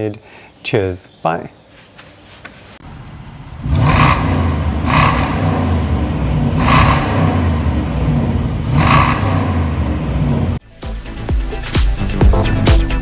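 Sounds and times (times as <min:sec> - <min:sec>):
car engine idling and revving: 0:02.8 - 0:12.2.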